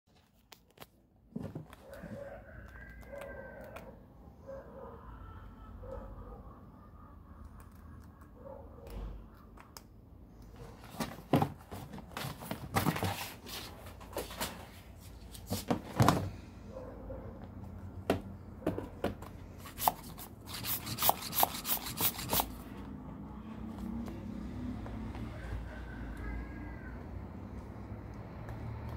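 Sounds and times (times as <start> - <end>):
handling clicks and rubbing: 19.2 - 22.6.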